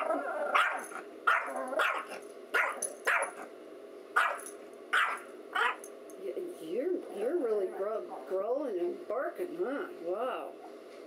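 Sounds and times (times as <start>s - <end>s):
small dog barking: 0.0s - 3.5s, 4.2s - 5.8s.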